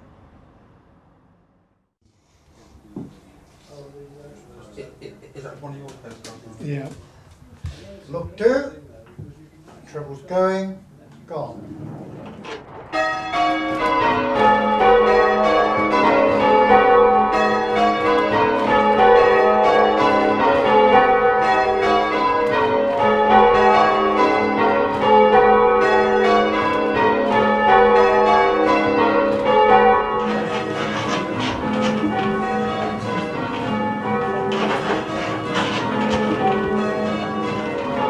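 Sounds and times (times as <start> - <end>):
church bells ringing: 12.6 - 38.0.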